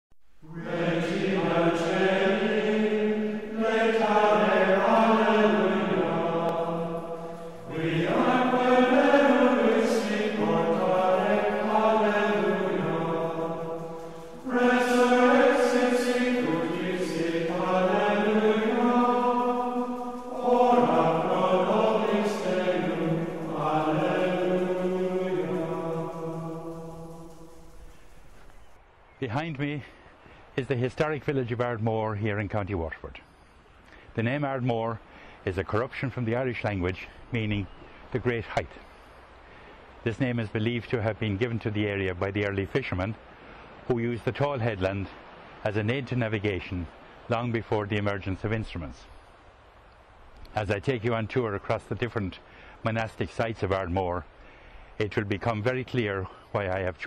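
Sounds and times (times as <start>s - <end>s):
low-voiced chanted singing: 0.4s - 32.8s.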